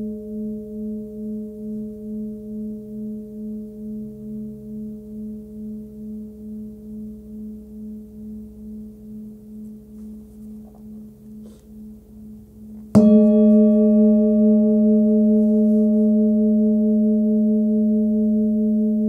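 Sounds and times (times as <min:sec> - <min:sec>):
singing bowl struck: 0:12.8 - 0:19.0
singing bowl ringing: 0:12.9 - 0:19.0.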